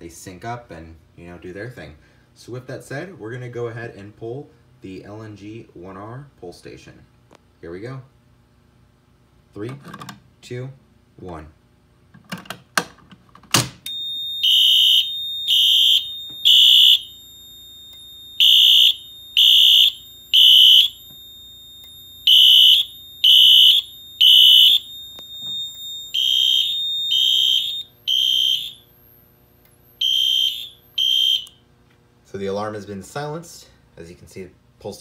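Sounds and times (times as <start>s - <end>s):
steady high tone: 13.9s - 29.2s
fire alarm horns blasting: 13.9s - 29.3s, 30.0s - 31.6s.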